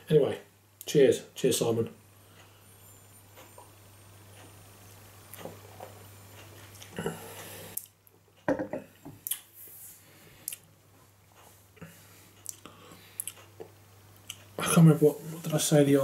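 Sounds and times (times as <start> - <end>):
glass knocking on table: 8.5 - 8.9.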